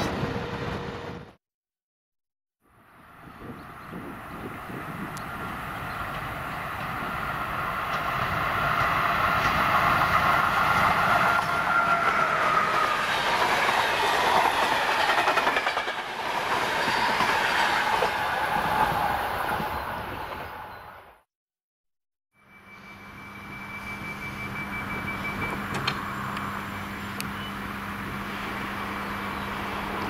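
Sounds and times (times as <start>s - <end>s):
passenger train passing: 0.0s - 1.3s, 2.7s - 21.2s, 22.6s - 30.0s
train wheels clattering on rail joints: 13.3s - 18.2s.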